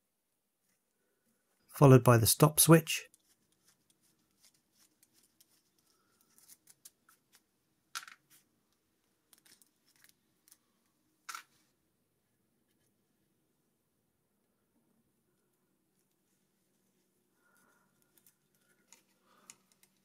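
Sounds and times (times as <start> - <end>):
gloved hands clicking and rustling: 3.1 - 11.6, 17.8 - 20.0.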